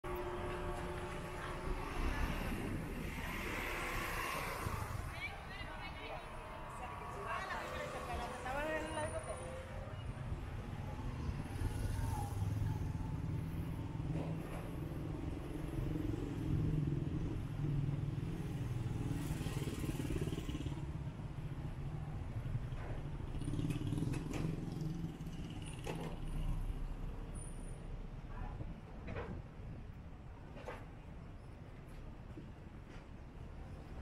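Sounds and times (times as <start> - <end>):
car and motorcycle engines running: 18.7 - 21.0, 22.7 - 26.4.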